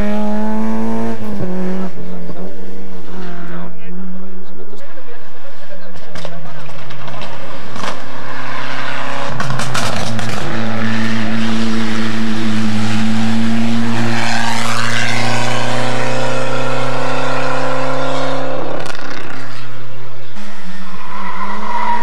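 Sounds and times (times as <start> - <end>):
rally car engine revving: 0.0 - 22.0.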